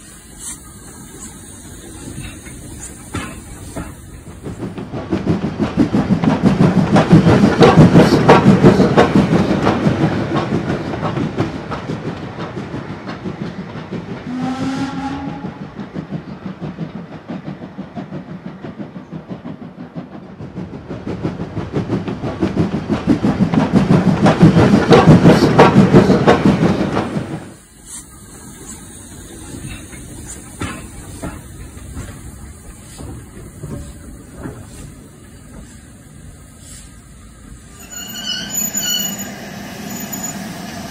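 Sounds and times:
short rising train whistle: 0:14.3 - 0:15.6, 0:37.7 - 0:40.9
model train wheels clicking on rails: 0:15.6 - 0:37.8.

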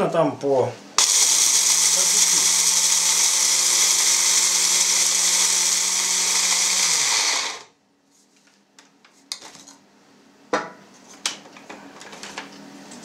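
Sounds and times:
electric blade grinder running: 0:01.0 - 0:07.7.

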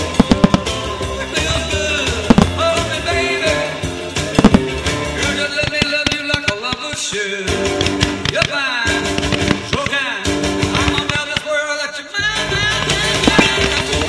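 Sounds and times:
firework bangs: 0:00.0 - 0:03.6, 0:04.2 - 0:07.1, 0:07.7 - 0:11.4
loud soundtrack music: 0:00.0 - 0:06.4, 0:07.2 - 0:11.3, 0:12.2 - 0:14.0.

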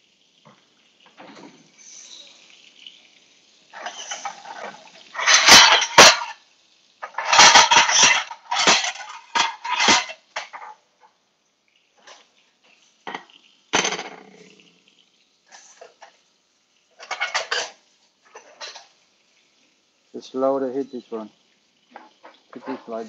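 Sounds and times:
crockery clattering: 0:03.8 - 0:06.4, 0:07.0 - 0:10.8, 0:13.1 - 0:14.3, 0:17.0 - 0:18.9.

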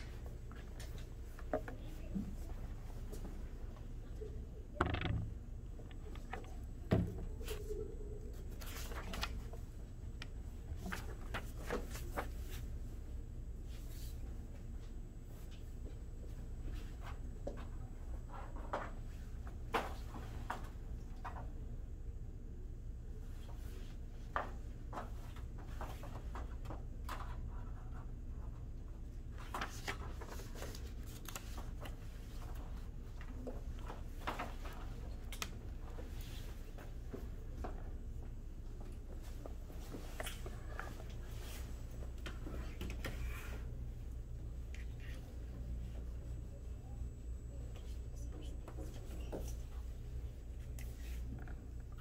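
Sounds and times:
low room hum: 0:00.0 - 0:52.0.

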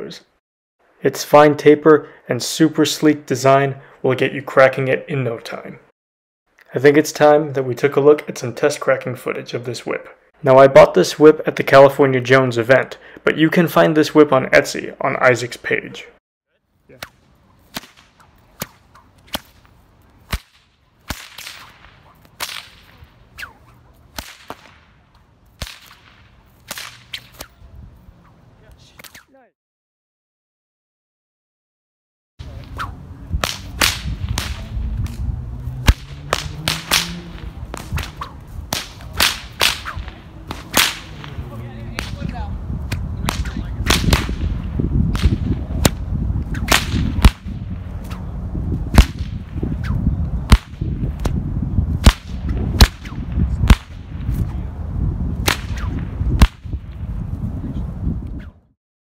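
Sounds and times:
bullwhip cracks: 0:16.9 - 0:27.6, 0:28.2 - 0:29.4, 0:32.4 - 0:48.3, 0:48.9 - 0:51.4, 0:52.0 - 0:54.6, 0:55.4 - 0:56.9
steady low rumble: 0:32.4 - 0:58.3.

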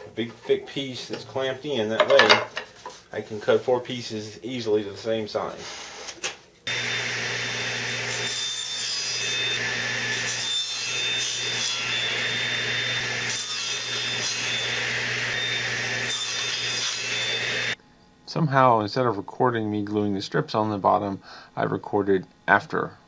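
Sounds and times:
table saw cutting wood: 0:06.7 - 0:17.8.

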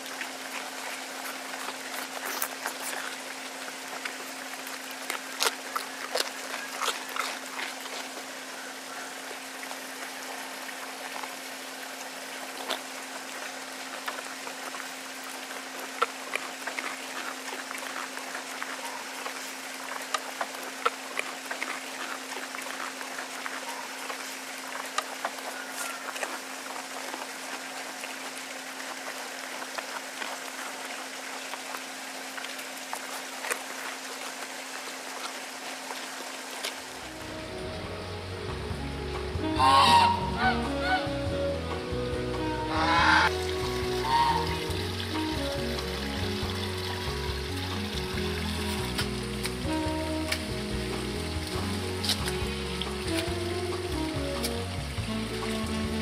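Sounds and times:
goat chewing and crunching: 0:00.0 - 0:10.3, 0:12.5 - 0:37.0, 0:43.2 - 0:56.0
low hum: 0:36.8 - 0:56.0.

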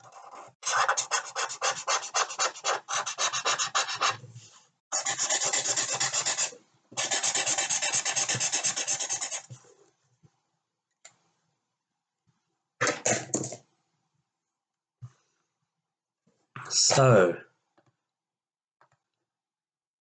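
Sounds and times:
pen scribbling on paper: 0:00.0 - 0:04.2, 0:04.9 - 0:09.5.

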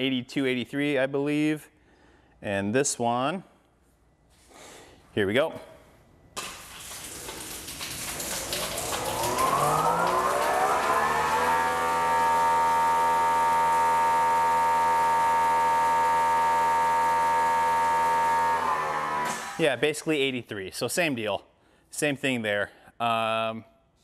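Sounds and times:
pressure washer motor whining: 0:08.0 - 0:19.8.

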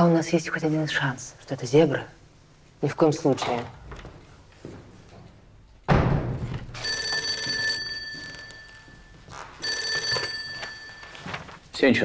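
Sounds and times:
thump: 0:05.9 - 0:06.7
telephone bell ringing: 0:06.8 - 0:11.6.

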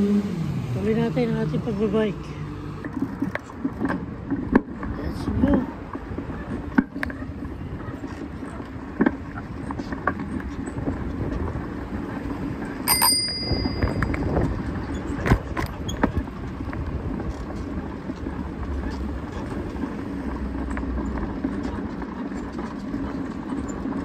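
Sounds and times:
bicycle tyres rumbling: 0:00.0 - 0:24.0
bike rattling: 0:00.0 - 0:24.0
bicycle bell ringing: 0:12.8 - 0:14.4.

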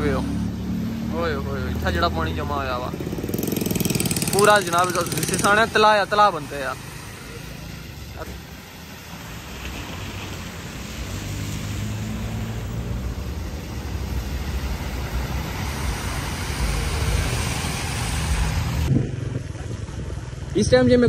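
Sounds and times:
vehicle engines running: 0:00.0 - 0:21.0
tyres swishing through water: 0:03.8 - 0:20.5.

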